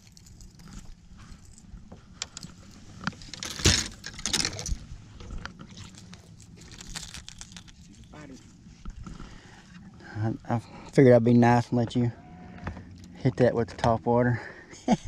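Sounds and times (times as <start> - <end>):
fishing tackle clicks and rattles: 0.0 - 8.4.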